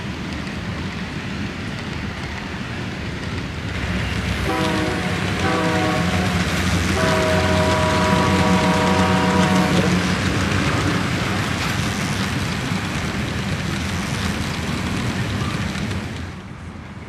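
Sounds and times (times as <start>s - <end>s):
model train rumbling past: 0.0s - 17.0s
model train horn chord: 4.4s - 10.1s.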